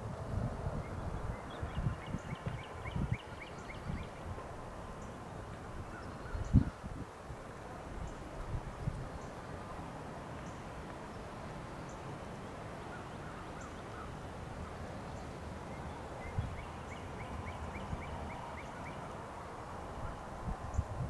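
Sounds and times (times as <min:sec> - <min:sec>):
outdoor background noise: 0:00.0 - 0:21.0.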